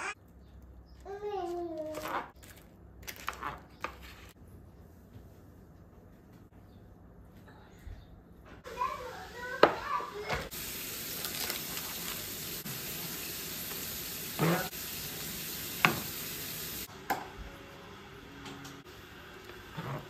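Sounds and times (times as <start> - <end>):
food sizzling on baking tray: 8.7 - 16.9.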